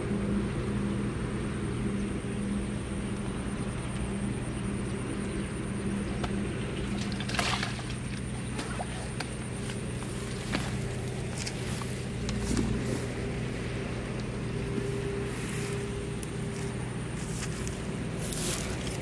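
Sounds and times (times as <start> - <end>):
low engine drone: 0.0 - 19.0.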